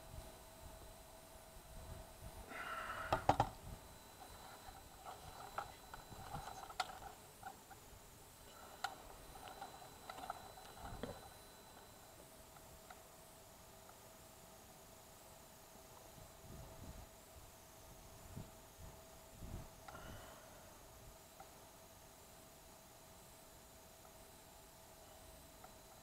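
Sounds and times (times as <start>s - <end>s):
handling clicks and rustles: 3.2s - 7.9s, 8.5s - 13.0s.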